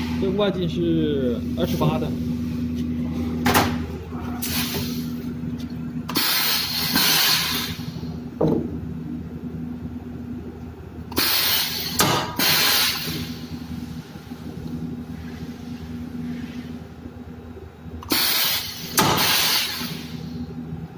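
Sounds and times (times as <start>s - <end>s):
compressed air hissing: 6.1s - 8.0s, 11.1s - 13.4s, 18.1s - 20.2s.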